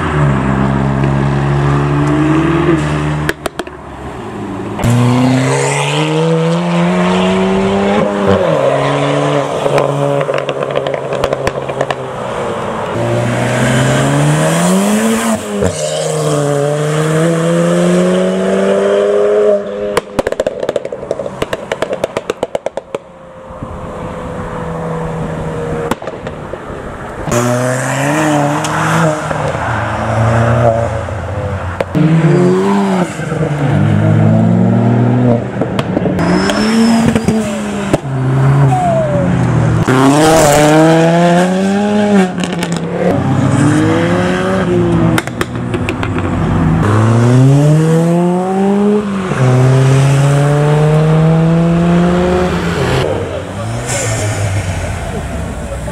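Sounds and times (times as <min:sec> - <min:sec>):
exhaust pops and crackles: 0:03.2 - 0:03.8, 0:09.7 - 0:12.1, 0:19.9 - 0:23.1, 0:25.8 - 0:26.6, 0:35.6 - 0:36.2, 0:45.1 - 0:46.5
car engine accelerating hard: 0:36.2 - 0:55.9.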